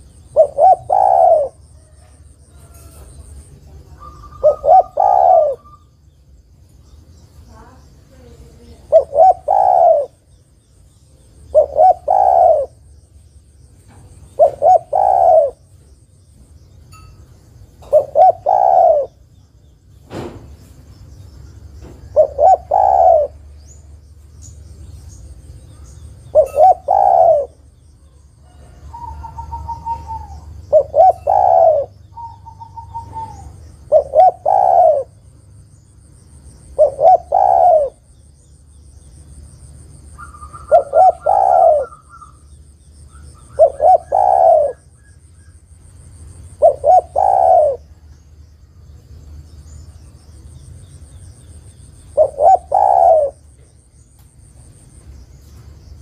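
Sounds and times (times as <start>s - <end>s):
dove cooing: 0.0s - 5.9s, 8.3s - 10.3s, 11.4s - 12.9s, 14.0s - 15.8s, 17.8s - 19.3s, 21.9s - 23.9s, 26.2s - 35.3s, 36.7s - 38.1s, 40.1s - 42.5s, 43.1s - 45.6s, 46.3s - 48.1s, 52.1s - 53.7s.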